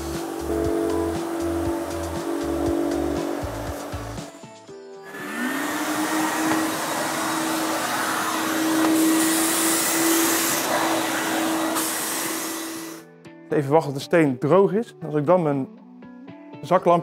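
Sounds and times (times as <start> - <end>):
wet vacuum motor whining: 0.0 - 4.3, 5.1 - 13.0
suction hiss: 5.0 - 13.0.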